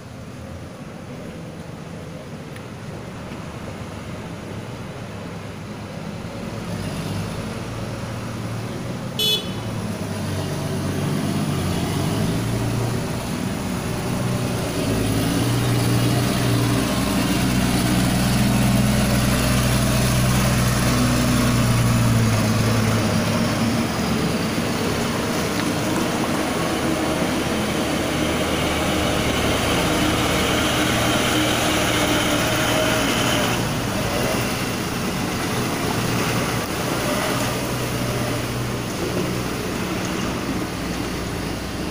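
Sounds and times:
traffic noise: 0.0 - 41.9
dump truck engine driving past: 3.5 - 41.9
short horn beep: 9.2 - 9.7.

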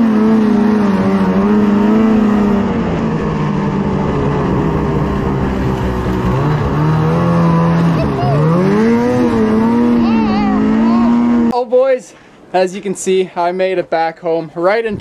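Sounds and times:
snowmobile engine running: 0.0 - 11.5.

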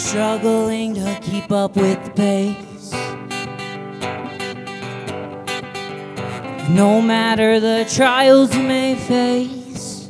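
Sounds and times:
acoustic guitar strumming: 0.0 - 10.0.

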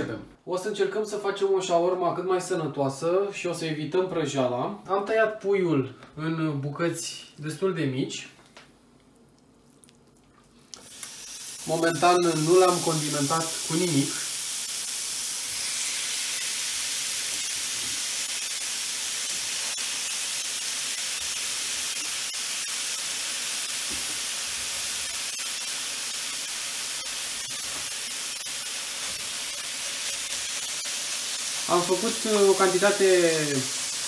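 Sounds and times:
chicken sizzling in a frying pan: 10.8 - 34.0.

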